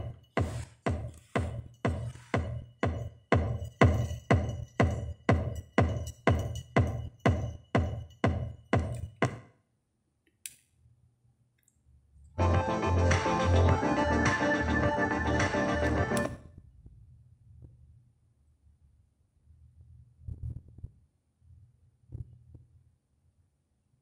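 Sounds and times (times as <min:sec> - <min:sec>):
electronic dance music: 0:00.0 - 0:09.4, 0:12.4 - 0:16.3.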